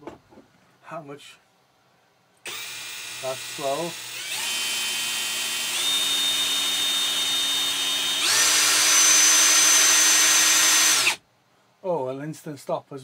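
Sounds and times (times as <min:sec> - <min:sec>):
cordless drill motor whine: 0:02.5 - 0:11.2.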